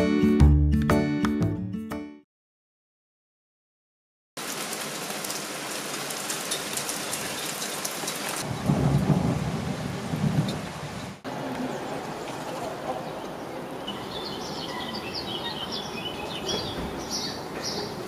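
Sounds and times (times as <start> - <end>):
rain on table and tiled floor: 4.4 - 18.0.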